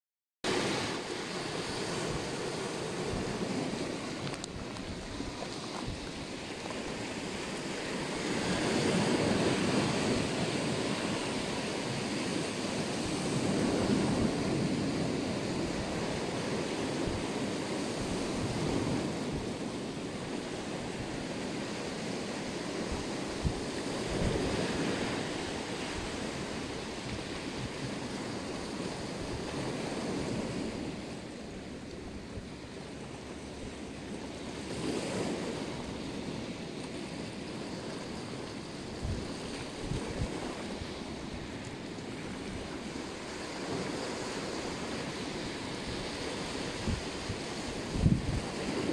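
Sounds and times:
surf breaking over rocks and pebbles: 0:00.5 - 0:31.3.

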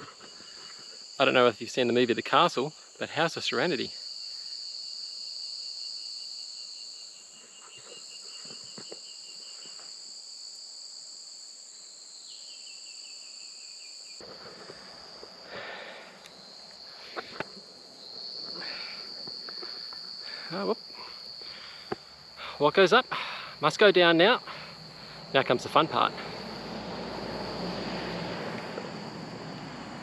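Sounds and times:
high-pitched insect chorus: 0:00.0 - 0:30.0
pulsing insect trill: 0:00.0 - 0:30.0.

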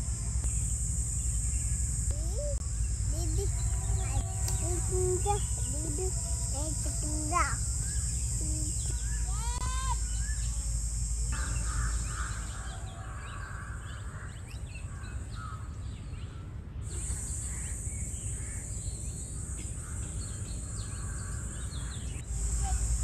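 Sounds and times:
steady high hiss: 0:00.0 - 0:13.9, 0:16.9 - 0:23.0
small birds chirping: 0:00.0 - 0:23.0
crows cawing: 0:11.3 - 0:15.8, 0:19.4 - 0:22.2.

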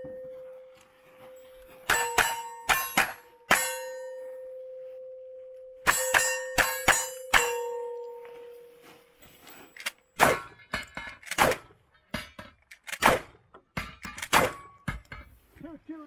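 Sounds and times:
steel plates ringing: 0:00.0 - 0:11.2
shotgun firing: 0:10.2 - 0:10.5, 0:11.3 - 0:11.6, 0:12.9 - 0:13.3, 0:14.3 - 0:14.6.

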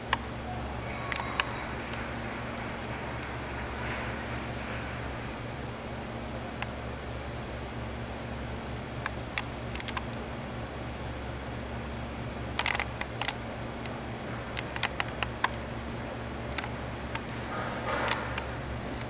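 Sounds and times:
steady low hum: 0:00.0 - 0:19.0
sharp clicks: 0:01.1 - 0:04.1, 0:09.0 - 0:10.2, 0:12.6 - 0:15.6, 0:16.5 - 0:17.3.

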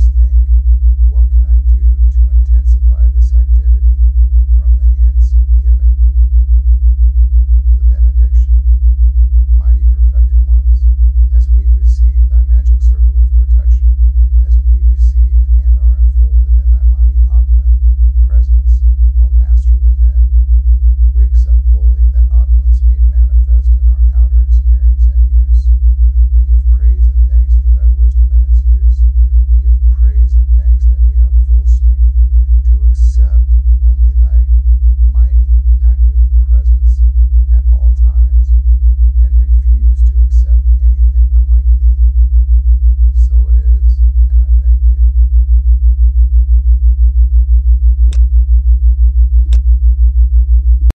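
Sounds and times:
low pulsing hum: 0:00.0 - 0:50.9
sharp click: 0:48.1 - 0:48.3, 0:49.4 - 0:49.7.

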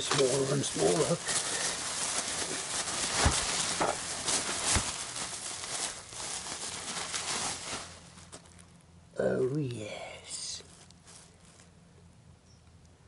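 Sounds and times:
bubble wrap crinkling: 0:00.0 - 0:09.0, 0:10.6 - 0:11.8.

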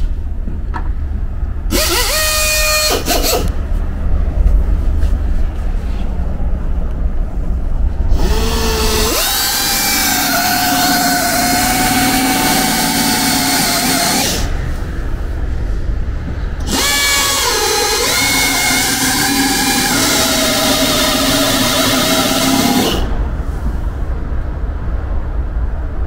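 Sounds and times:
pneumatic drill boring into metal: 0:01.7 - 0:03.5, 0:08.1 - 0:14.5, 0:16.6 - 0:23.2.

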